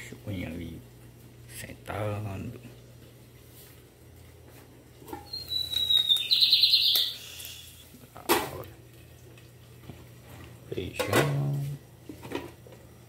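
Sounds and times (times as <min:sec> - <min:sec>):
high squeaking whistle and trill: 0:05.2 - 0:07.6.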